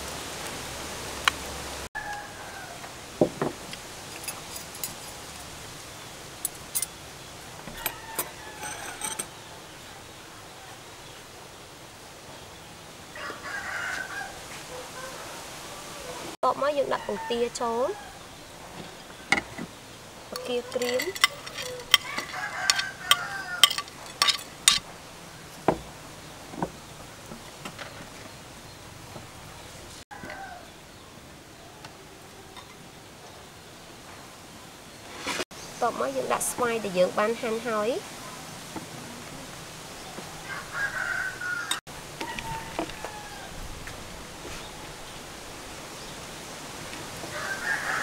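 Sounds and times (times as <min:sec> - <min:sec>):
steady background hiss: 0:00.0 - 0:48.0
metal utensil clinking on plate: 0:04.1 - 0:05.5, 0:06.4 - 0:07.0, 0:07.7 - 0:09.3, 0:20.4 - 0:24.8.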